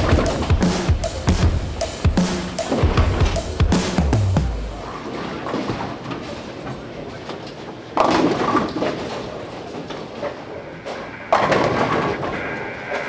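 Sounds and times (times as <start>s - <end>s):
bowling balls rolling: 4.7s - 6.6s, 7.4s - 13.0s.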